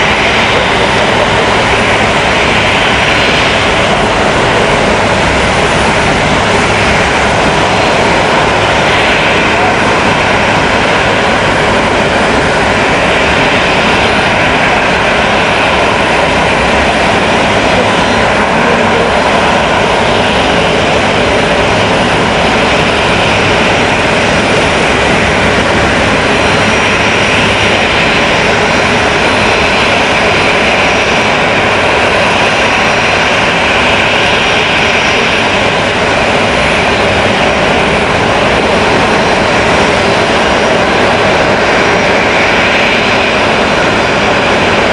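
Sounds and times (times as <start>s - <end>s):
high turbine whine: 0.0s - 44.9s
turboprop engines running: 0.0s - 44.9s.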